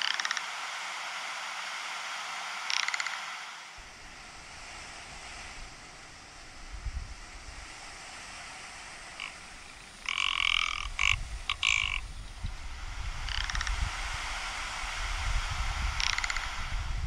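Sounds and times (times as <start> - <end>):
bird croaking calls: 0.0 - 0.4, 2.7 - 3.2, 9.1 - 12.5, 13.1 - 13.9, 15.8 - 16.7.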